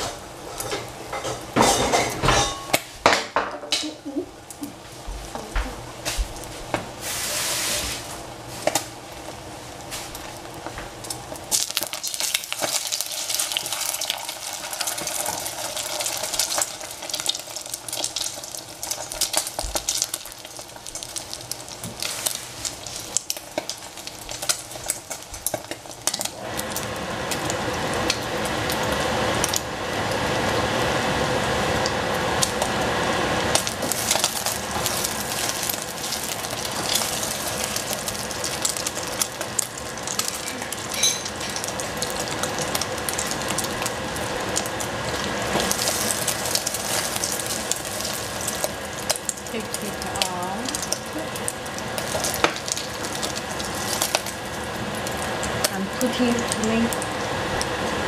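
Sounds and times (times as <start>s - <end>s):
egg and tomato frying in oil: 0.0s - 58.0s
utensil scraping a pan: 7.0s - 8.8s.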